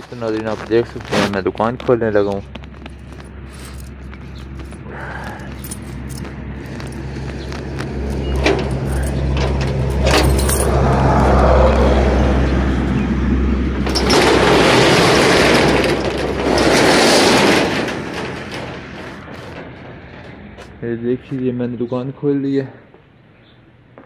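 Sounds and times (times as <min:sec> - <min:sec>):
metal shutter rattling: 0:05.6 - 0:20.8.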